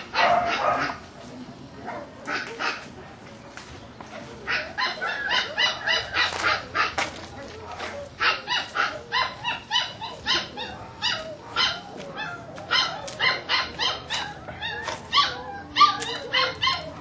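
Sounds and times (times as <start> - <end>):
dog yelping and whining: 4.7 - 6.7, 7.9 - 17.0.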